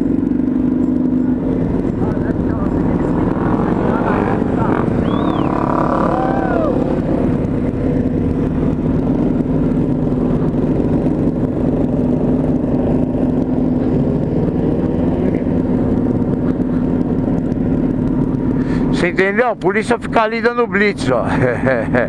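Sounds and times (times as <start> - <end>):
motorcycle engine cruising: 0.0 - 22.0
short whistling glides: 5.0 - 5.7.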